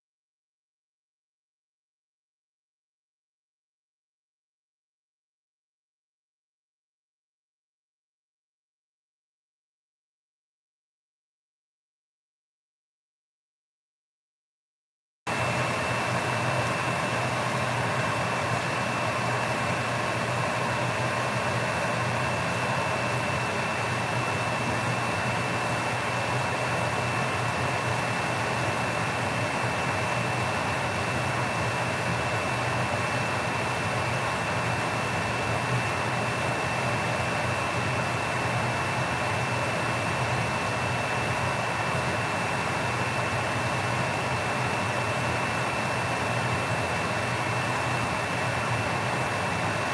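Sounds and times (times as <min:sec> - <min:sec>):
pot boiling on gas stove: 0:15.3 - 0:49.9.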